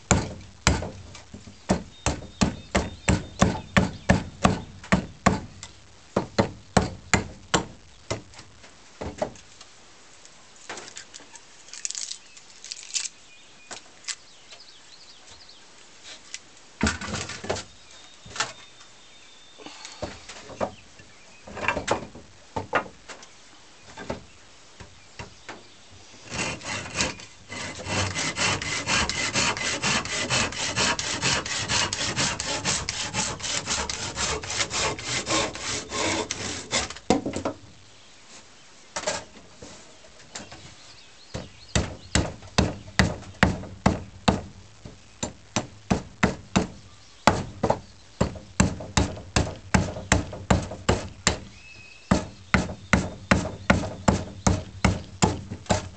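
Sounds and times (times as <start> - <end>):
axe chopping wood: 0.1 - 1.0, 47.3 - 51.5
hand saw cutting wood: 26.2 - 37.0.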